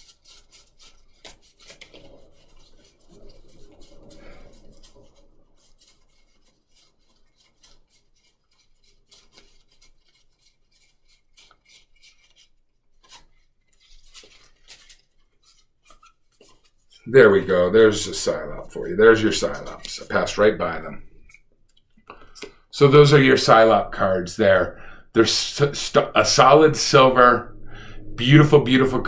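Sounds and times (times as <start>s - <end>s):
cards clicking and snapping: 0.0s - 3.0s, 5.7s - 16.8s, 21.3s - 22.6s
cards rubbing: 0.0s - 20.6s.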